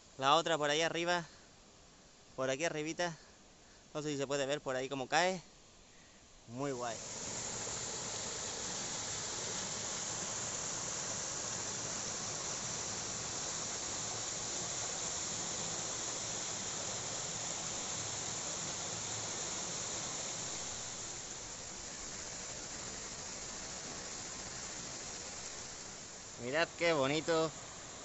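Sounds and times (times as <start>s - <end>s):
waterfall and stream rushing: 6.6s - 28.0s.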